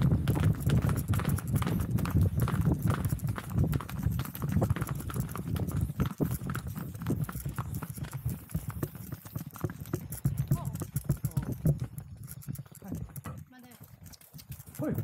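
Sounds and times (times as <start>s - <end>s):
hooves clip-clopping on dirt: 0.0s - 15.0s.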